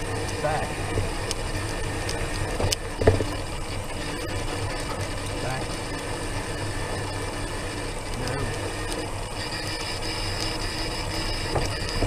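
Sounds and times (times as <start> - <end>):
small vehicle drive on concrete: 0.0 - 12.0
thin high whine: 0.0 - 12.0.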